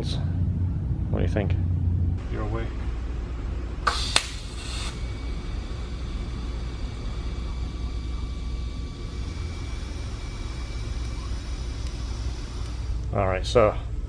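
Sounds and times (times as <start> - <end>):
welder hum with thin whine: 0.0 - 14.0
welding arc crackle: 3.8 - 13.6.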